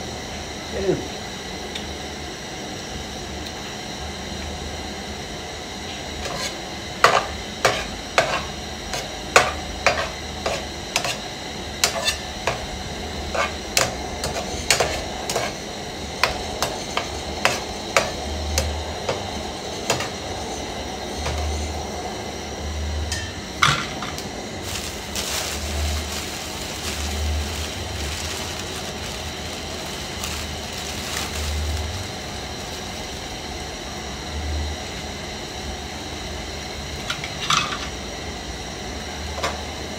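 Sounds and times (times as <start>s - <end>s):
metal spoon scraping a pan: 6.2s - 11.2s, 11.8s - 12.2s.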